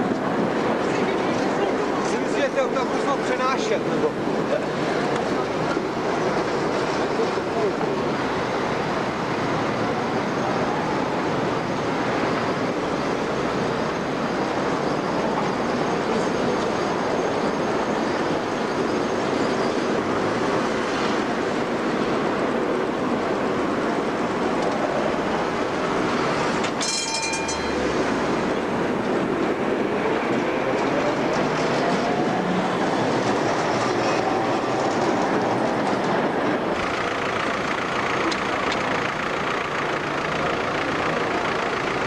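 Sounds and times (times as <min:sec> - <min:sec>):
tram rolling on track: 0:00.0 - 0:42.0
high-pitched ringing tone: 0:26.8 - 0:28.1.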